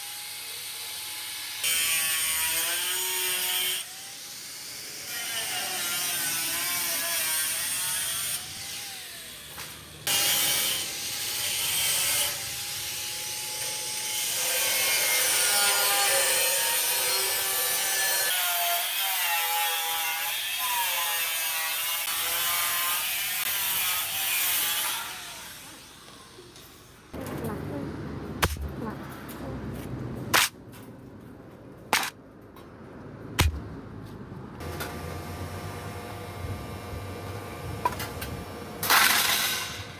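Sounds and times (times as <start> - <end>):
angle grinder cutting sheet steel: 0.0 - 26.5, 38.8 - 39.9.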